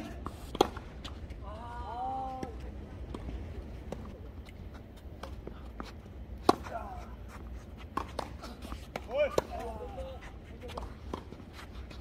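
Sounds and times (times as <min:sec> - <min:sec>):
tennis balls bouncing on hard court: 0:00.0 - 0:01.3, 0:07.9 - 0:09.8
tennis balls struck by rackets: 0:00.0 - 0:01.3, 0:06.3 - 0:07.0, 0:07.8 - 0:09.8.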